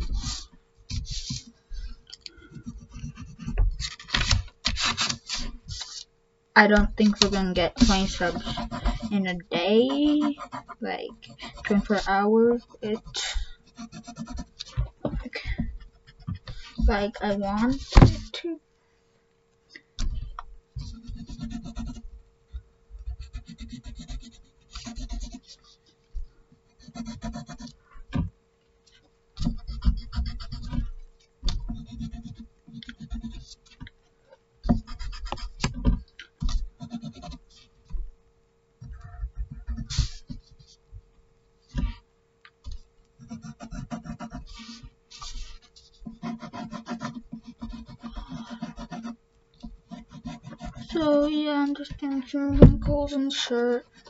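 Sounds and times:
pencil scratching on paper: 0:00.0 - 0:01.5, 0:02.5 - 0:06.0, 0:07.0 - 0:14.7, 0:16.0 - 0:18.4, 0:20.8 - 0:22.1, 0:23.0 - 0:25.9, 0:26.7 - 0:27.8, 0:29.4 - 0:30.9, 0:31.5 - 0:33.7, 0:34.6 - 0:37.7, 0:38.9 - 0:40.8, 0:43.2 - 0:51.4
faint steady hum: 0:00.0 - 0:54.0.

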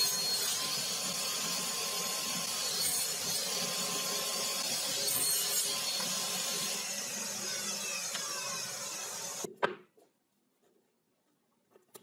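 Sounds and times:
table saw cutting wood: 0:00.0 - 0:09.5.

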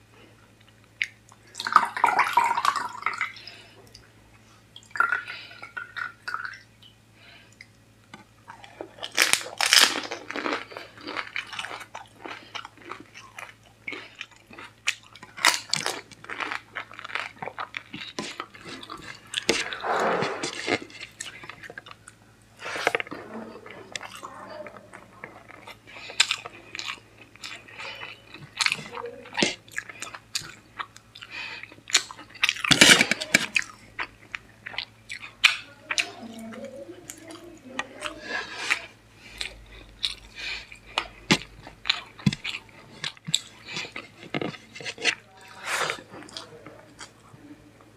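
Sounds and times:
chewing food: 0:00.5 - 0:47.5
crisp shell crunching when bitten: 0:09.0 - 0:13.0.

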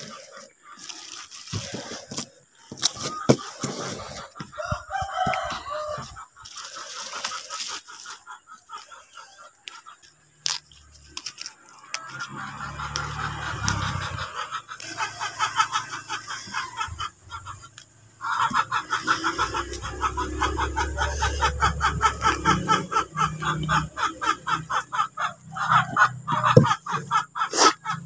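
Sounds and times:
chickens clucking: 0:00.0 - 0:28.0.

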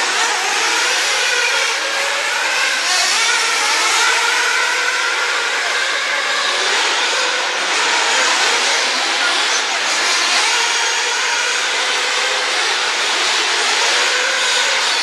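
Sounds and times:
rc cars motors whining: 0:00.0 - 0:15.0.

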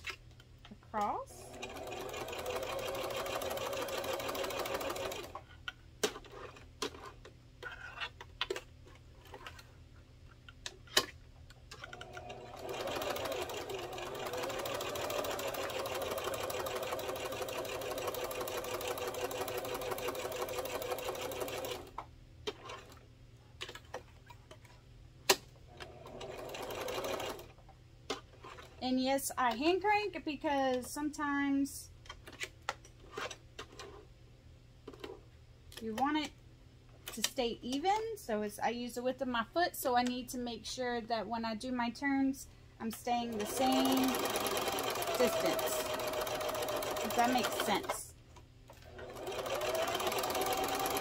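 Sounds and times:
sewing machine stitching: 0:01.4 - 0:05.4, 0:11.7 - 0:21.9, 0:25.8 - 0:27.5, 0:43.2 - 0:48.0, 0:48.8 - 0:51.0.

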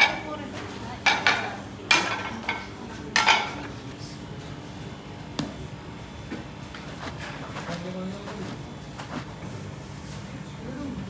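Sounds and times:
ceramic plates clattering: 0:01.0 - 0:03.6.

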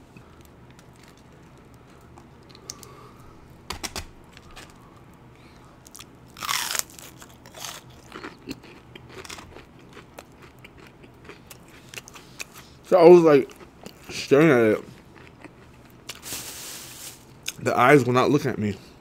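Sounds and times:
crunchy chewing: 0:05.8 - 0:12.8, 0:14.8 - 0:16.3.

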